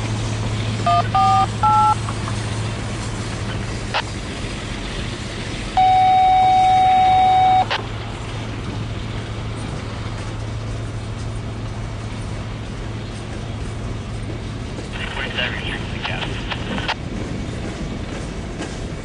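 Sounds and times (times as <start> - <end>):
train cars rolling on rails: 0.0 - 19.0
radio scanner beep: 0.9 - 2.0, 5.8 - 7.8
radio click: 15.0 - 17.0.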